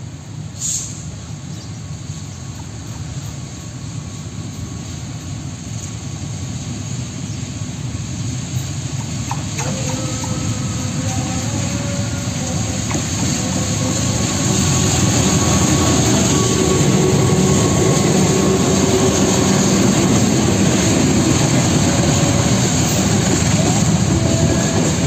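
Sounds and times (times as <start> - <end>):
locomotive engine and rail rumble: 0.0 - 25.0
short hiss: 0.6 - 1.2.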